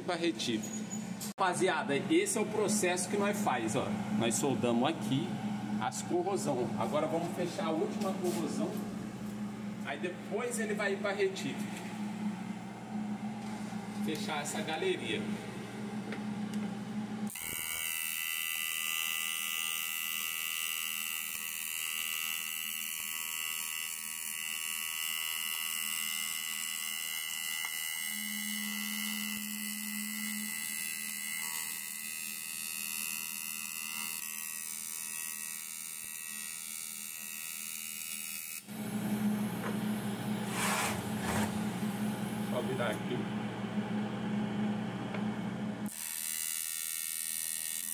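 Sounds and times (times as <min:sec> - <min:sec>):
welding arc buzzing and hissing: 0:00.1 - 0:43.2, 0:45.8 - 0:47.9.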